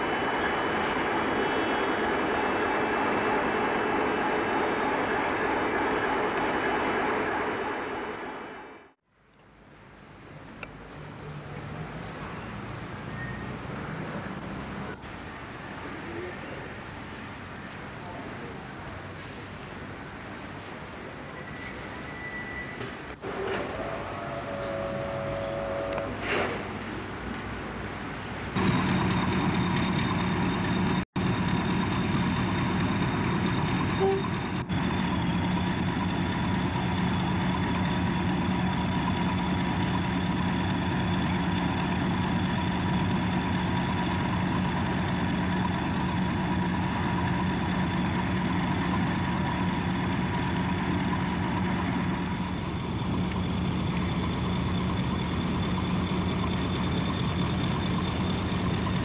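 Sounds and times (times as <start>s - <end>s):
diesel locomotive engine idling: 0.0s - 9.0s, 12.0s - 59.0s
high whine: 21.4s - 26.3s.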